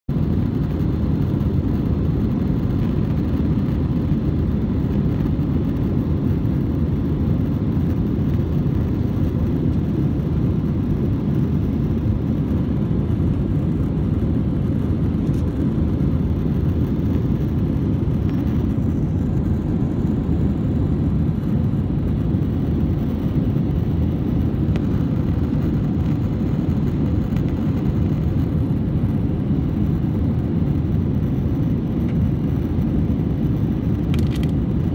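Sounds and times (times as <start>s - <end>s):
faint steady hum: 0.1s - 34.9s
jet engines rumbling in cabin: 0.1s - 34.9s
rushing air: 7.5s - 34.9s.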